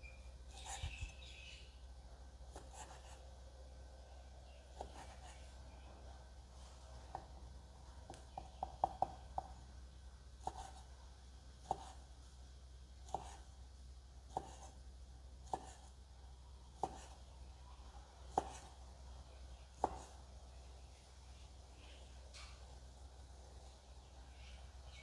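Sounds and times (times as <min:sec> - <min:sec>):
steady low hum: 0:00.0 - 0:25.0
knife chopping on wooden board: 0:08.3 - 0:09.5, 0:11.6 - 0:12.0, 0:14.3 - 0:14.7, 0:15.5 - 0:15.8, 0:16.8 - 0:17.2, 0:18.3 - 0:18.7, 0:19.8 - 0:20.2.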